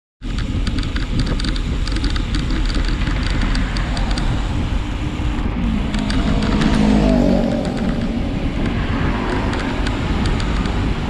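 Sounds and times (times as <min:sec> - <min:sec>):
tyre and road noise: 0:00.2 - 0:11.0
wind buffeting microphone: 0:00.2 - 0:11.0
light ticking rattle: 0:00.3 - 0:04.8.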